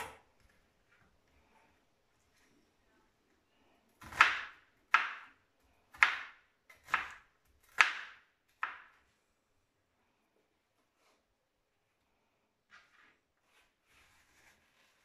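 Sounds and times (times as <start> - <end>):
knife chopping onion: 3.9 - 9.0.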